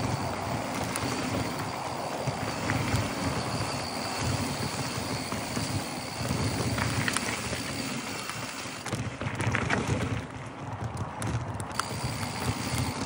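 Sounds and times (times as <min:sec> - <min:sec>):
bike rattling over bumps: 0:00.0 - 0:13.0
bike tyres rumbling on dirt: 0:00.0 - 0:13.0.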